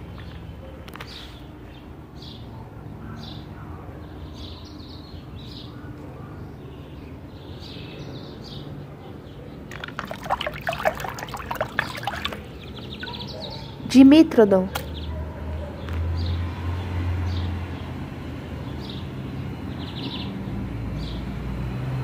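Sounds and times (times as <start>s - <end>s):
hand splashing in water: 9.7s - 13.4s.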